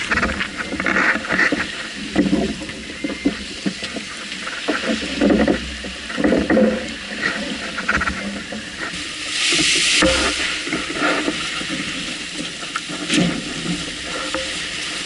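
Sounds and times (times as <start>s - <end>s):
water rushing along hull: 0.0s - 15.0s
waves slapping hull: 0.0s - 15.0s
hiss of spray: 9.2s - 11.2s.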